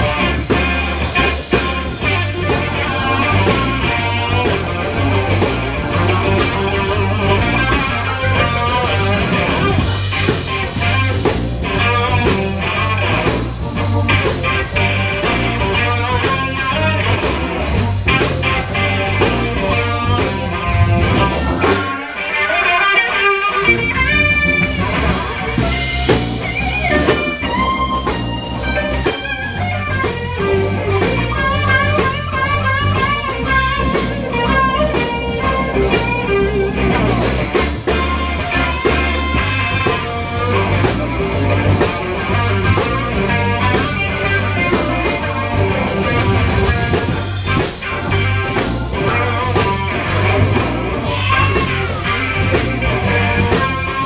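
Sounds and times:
bass guitar: 0:00.0 - 0:54.0
drum kit: 0:00.0 - 0:54.0
electric guitar lead: 0:00.0 - 0:54.0.

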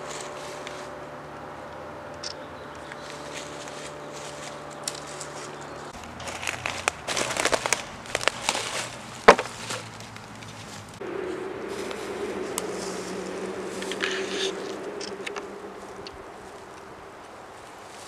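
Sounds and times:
footsteps crunching dry leaves: 0:00.0 - 0:01.1, 0:02.8 - 0:18.0
sharp crack: 0:06.2 - 0:17.4.

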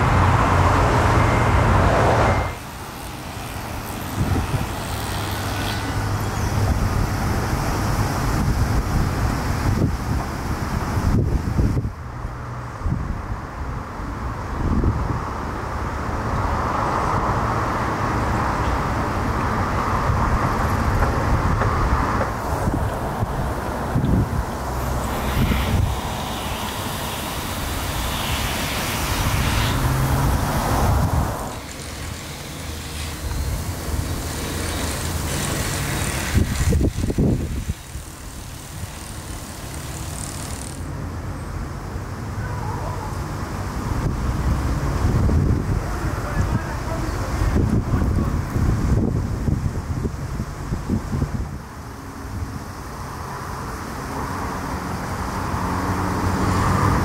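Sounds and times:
road traffic hiss: 0:00.0 - 0:57.0
wind buffeting microphone: 0:03.8 - 0:05.0, 0:06.3 - 0:12.2, 0:19.2 - 0:31.6, 0:32.9 - 0:39.1, 0:43.9 - 0:51.7.

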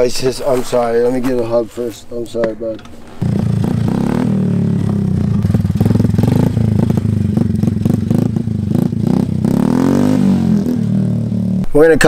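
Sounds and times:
atv engine revving: 0:03.2 - 0:11.9.

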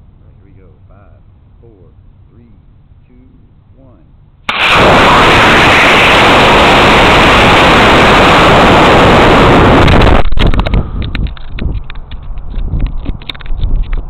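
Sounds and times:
crackling and buffeting: 0:04.4 - 0:14.0
rocket motor roaring: 0:04.5 - 0:11.9
wind rushing over microphone: 0:04.5 - 0:14.0.

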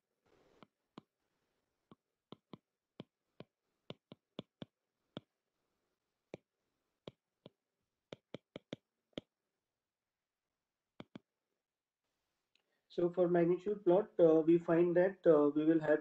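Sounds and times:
stylus tapping on glass screen: 0:02.3 - 0:05.3.

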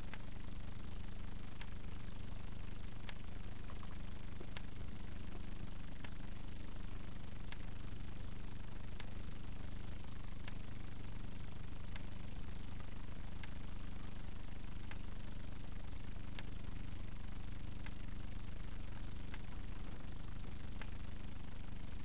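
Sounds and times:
electrical hum and hiss: 0:00.0 - 0:22.0
faint tick: 0:01.6 - 0:01.8, 0:03.0 - 0:06.3, 0:07.5 - 0:07.7, 0:09.0 - 0:09.6, 0:10.3 - 0:10.7, 0:11.9 - 0:14.2, 0:14.8 - 0:15.1, 0:16.3 - 0:16.8, 0:17.7 - 0:18.1, 0:18.9 - 0:19.9, 0:20.7 - 0:21.1.

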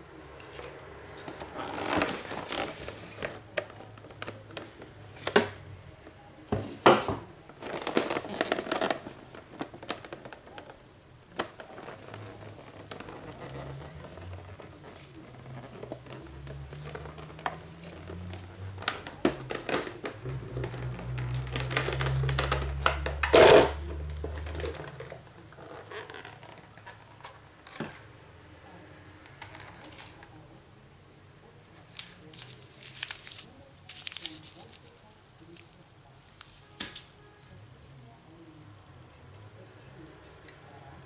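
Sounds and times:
stiff plastic crackling and clicking: 0:01.2 - 0:05.6, 0:07.5 - 0:27.9.

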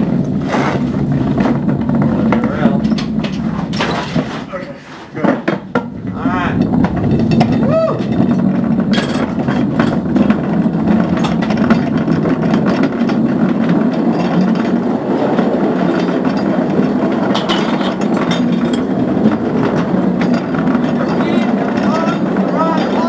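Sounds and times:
cart wheels rolling on rails: 0:00.0 - 0:23.0.

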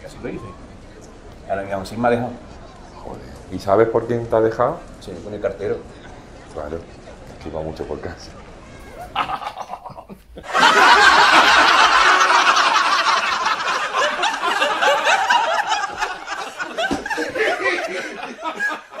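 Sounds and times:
canned laugh track: 0:09.1 - 0:19.0.

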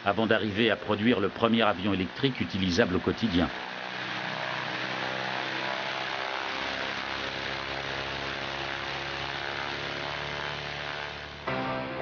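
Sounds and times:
machine running with hiss and hum: 0:00.0 - 0:12.0.

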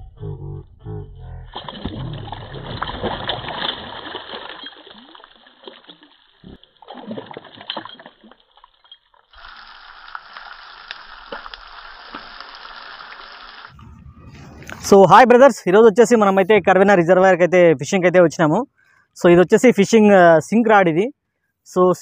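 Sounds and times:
fish thrashing and splashing: 0:01.5 - 0:13.8
fish frying in oil: 0:09.2 - 0:13.7.

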